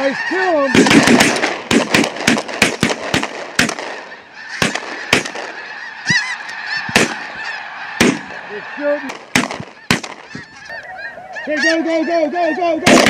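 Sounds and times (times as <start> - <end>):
geese honking: 0.0 - 13.0
shotguns firing: 0.7 - 6.2, 6.9 - 7.4, 8.0 - 8.4, 9.1 - 10.4.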